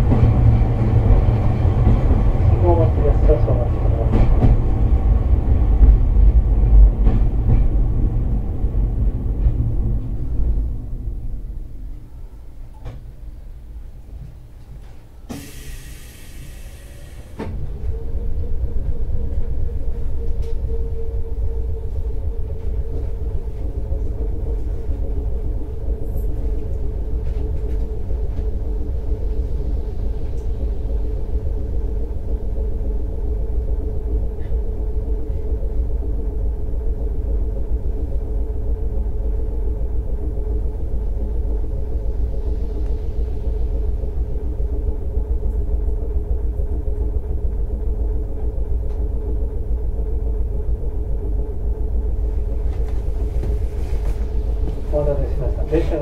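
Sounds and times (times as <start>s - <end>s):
wheels rumbling on rail: 0.0s - 56.0s
humming drive tone: 16.0s - 56.0s.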